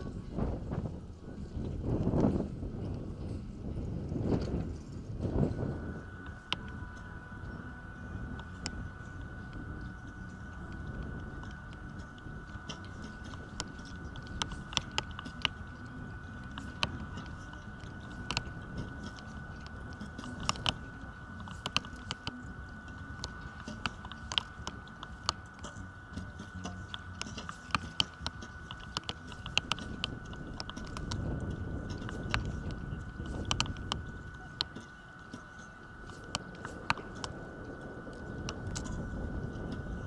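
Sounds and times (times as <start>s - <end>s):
wind rumbling on microphone: 0.0s - 40.0s
bows clicking and snapping: 11.4s - 37.4s.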